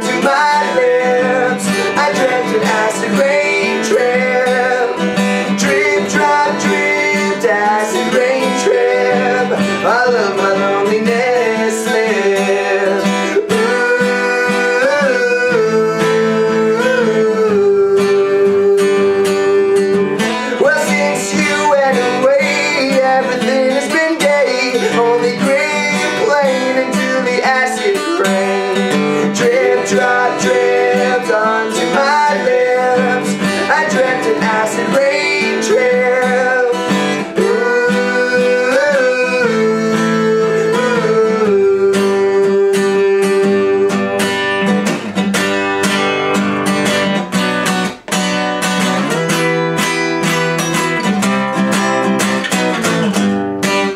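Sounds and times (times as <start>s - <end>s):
person singing wordless melody: 0.0s - 44.7s
acoustic guitar strumming: 0.0s - 53.9s.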